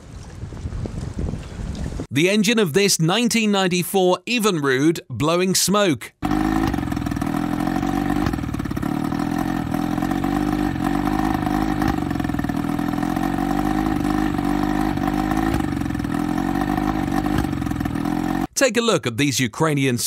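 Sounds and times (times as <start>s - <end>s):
outboard motor running: 6.2s - 18.5s.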